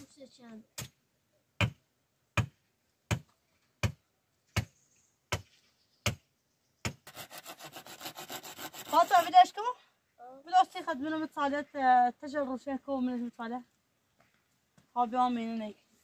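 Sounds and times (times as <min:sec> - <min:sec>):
sharp blows on wood: 0:01.6 - 0:09.4
sawing wood: 0:06.9 - 0:09.5.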